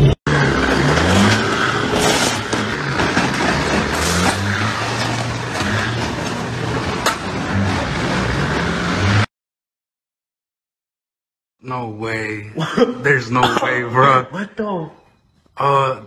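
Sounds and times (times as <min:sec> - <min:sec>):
grinding noise: 0:00.0 - 0:09.3
truck engine running hard: 0:00.0 - 0:09.3.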